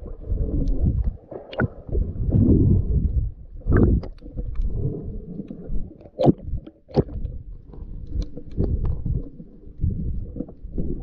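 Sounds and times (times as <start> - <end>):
muffled underwater water rumble: 0.0 - 11.0.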